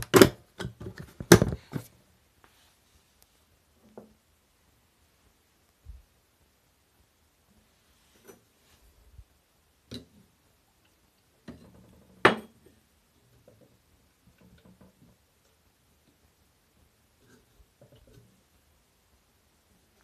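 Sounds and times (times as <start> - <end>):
hard objects clicking and knocking: 0.0 - 1.9.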